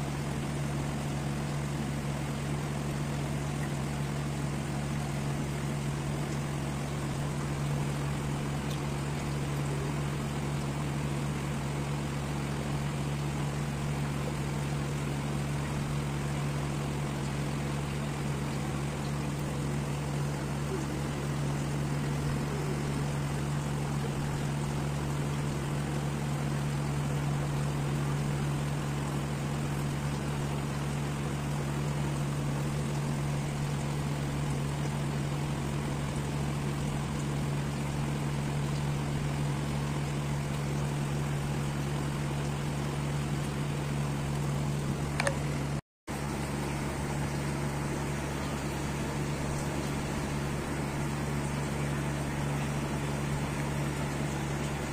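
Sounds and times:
small motor humming with hiss: 0.0 - 45.6.

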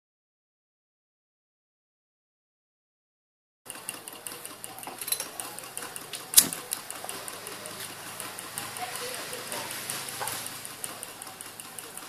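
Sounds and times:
alcohol stove burning: 3.7 - 12.0
light ticks and clicks: 3.9 - 12.0.

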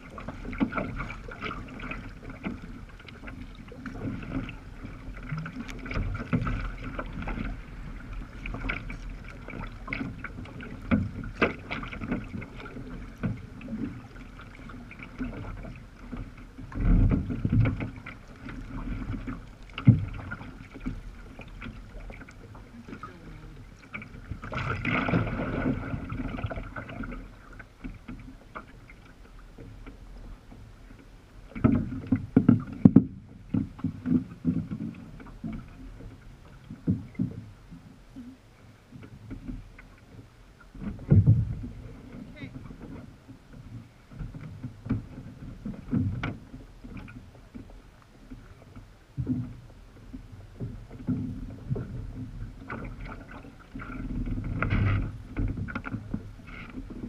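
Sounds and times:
paddle splashes: 0.0 - 57.0
water sloshing against kayak hull: 0.0 - 57.0.

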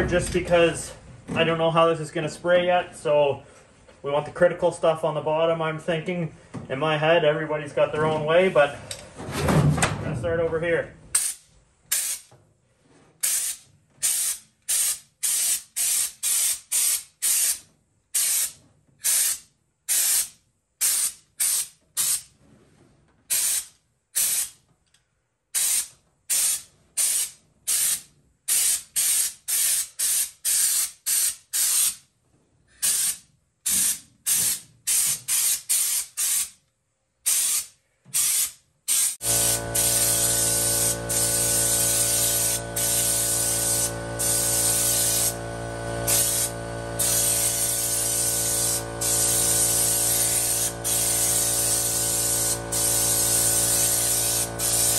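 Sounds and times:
spray gun hissing blasts: 38.2 - 54.9.

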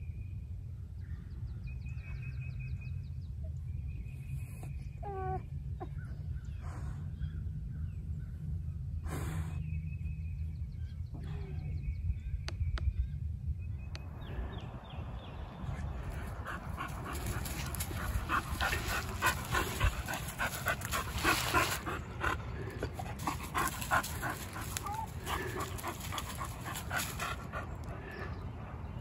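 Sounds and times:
dog panting: 16.0 - 29.0.

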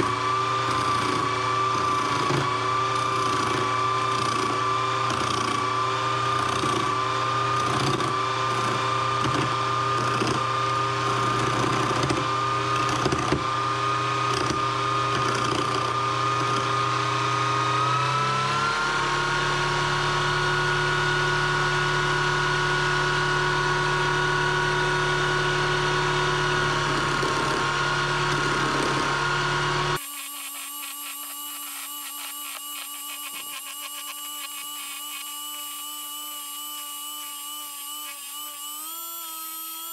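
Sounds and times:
chisel scraping spinning wood: 0.0 - 16.9, 26.6 - 39.9
lathe motor whine: 0.0 - 39.9.

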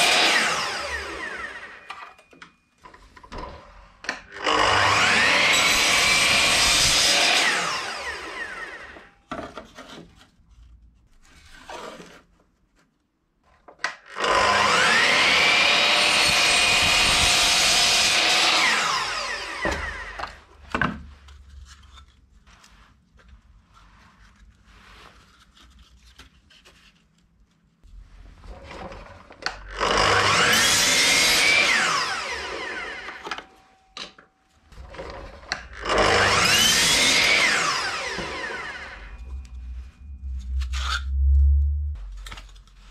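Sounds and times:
power tool motor whine: 0.0 - 2.1, 4.4 - 9.1, 14.2 - 20.4, 29.7 - 33.4, 34.8 - 41.3
knocks and handling sounds: 1.8 - 4.4, 8.9 - 13.9, 19.6 - 29.7.

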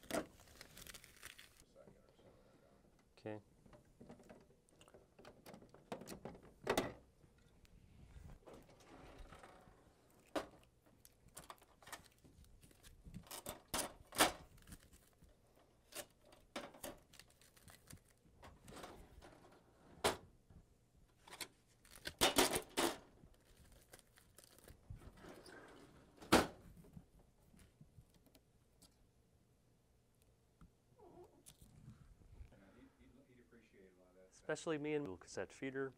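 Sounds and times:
packing tape tearing: 0.0 - 1.6, 10.2 - 15.2, 16.9 - 18.2, 21.8 - 24.8
tape crinkling: 0.0 - 1.6, 10.1 - 16.2, 16.9 - 18.2, 21.7 - 22.6, 23.3 - 25.2.

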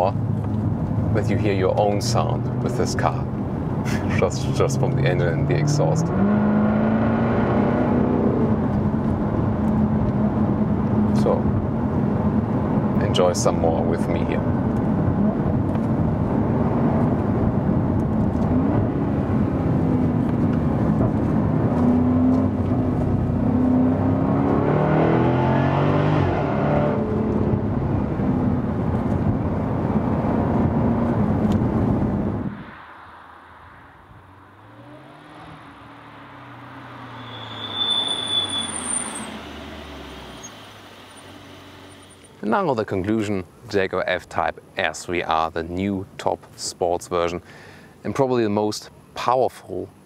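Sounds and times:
quieter car engine: 0.0 - 45.5
car engine revving hard: 5.4 - 8.7, 21.5 - 28.4.

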